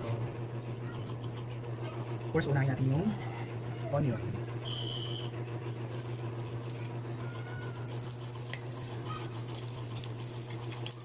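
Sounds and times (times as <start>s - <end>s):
steady low hum: 0.0s - 11.0s
garlic sizzling in hot oil: 5.9s - 11.0s.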